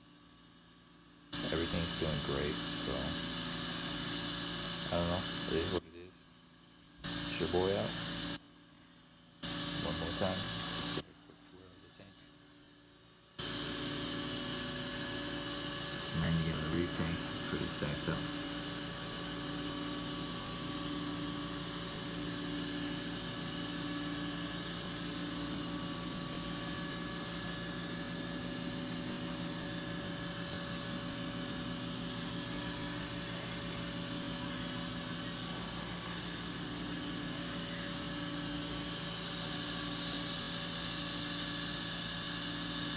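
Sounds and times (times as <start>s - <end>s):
aquarium pumps humming: 13.4s - 41.6s.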